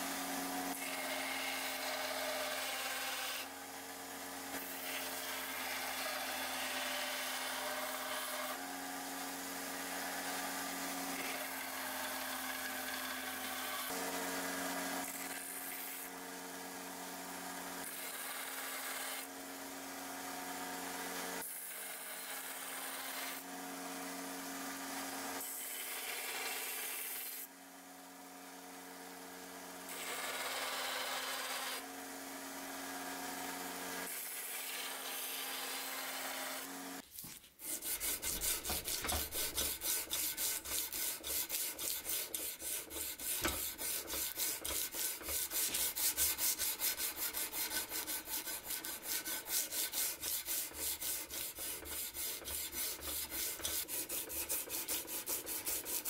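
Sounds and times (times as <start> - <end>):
belt grinder grinding steel: 29.9 - 31.8, 37.6 - 56.0
sandpaper rubbing on blade: 37.0 - 56.0.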